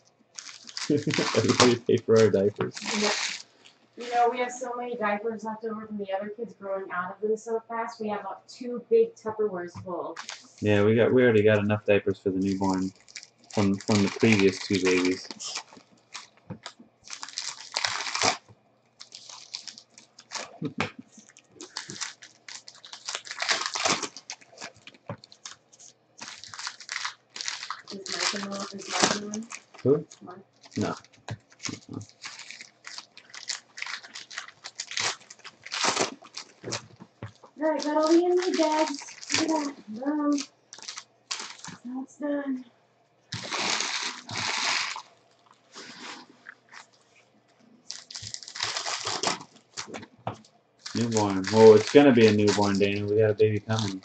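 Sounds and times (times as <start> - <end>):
card pack wrapper crinkling: 0.4 - 4.2, 10.2 - 10.8, 12.4 - 41.9, 43.3 - 47.0, 47.8 - 53.1, 53.7 - 54.0
cards rustling: 0.4 - 4.2, 10.2 - 10.8, 12.4 - 29.9, 30.6 - 41.8, 47.8 - 53.0.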